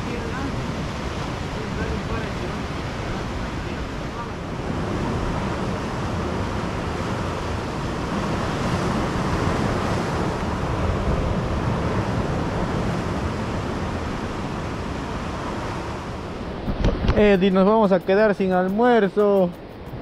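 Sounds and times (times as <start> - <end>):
ocean surf breaking: 0.0 - 20.0
wind: 0.0 - 20.0.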